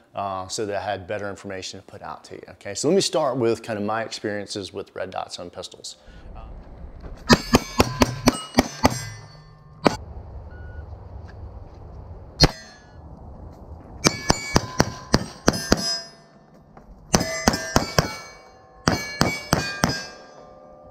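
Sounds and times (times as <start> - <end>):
steel targets ringing: 7.3 - 10.0, 12.4 - 13.0, 14.0 - 20.9
pistol shots: 14.0 - 16.0, 17.1 - 20.2.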